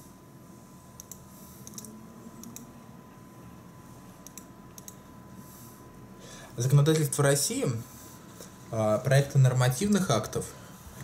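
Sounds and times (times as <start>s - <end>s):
keyboard and mouse clicks: 1.0s - 2.7s, 4.2s - 5.0s.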